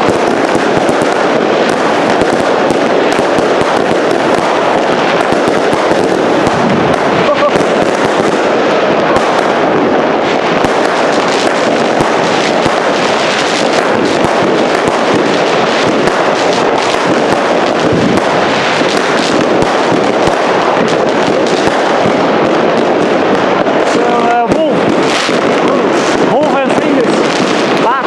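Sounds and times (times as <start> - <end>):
fireworks barrage with crackling: 0.0 - 28.0.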